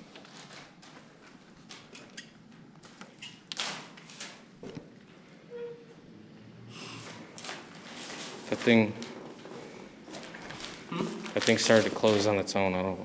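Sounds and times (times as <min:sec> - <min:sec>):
footsteps on debris: 0:07.4 - 0:12.5.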